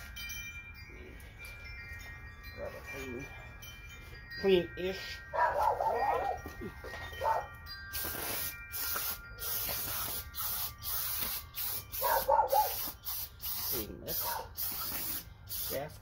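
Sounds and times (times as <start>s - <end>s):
aerosol can spraying: 7.9s - 16.0s.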